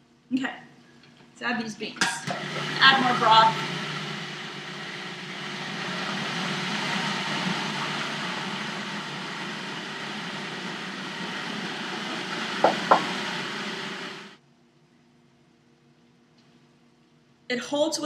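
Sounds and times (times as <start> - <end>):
food processor motor running: 2.2 - 14.4
sharp knocks: 12.6 - 13.2.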